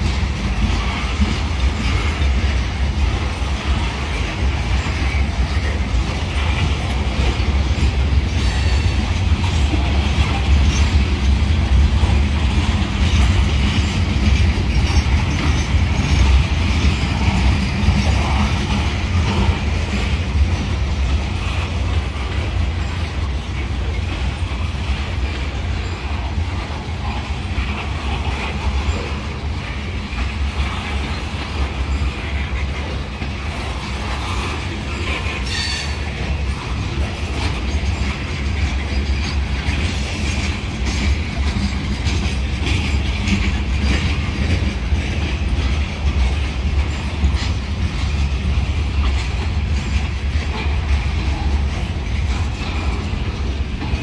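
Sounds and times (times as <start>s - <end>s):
clicking over rail joints: 0.0s - 54.0s
freight train wheels rumbling: 0.0s - 54.0s
high wheel squeal: 35.3s - 36.1s.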